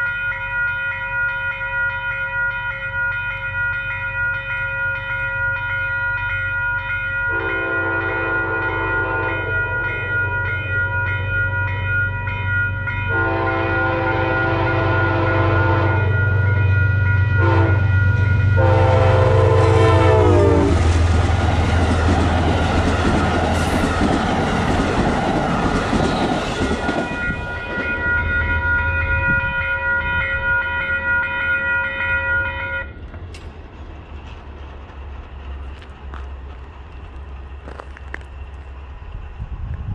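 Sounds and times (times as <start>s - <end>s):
train passing clickety-clack: 0.0s - 39.9s
train air horn blasts: 7.3s - 9.8s, 13.1s - 16.4s, 17.3s - 17.9s, 18.6s - 20.9s.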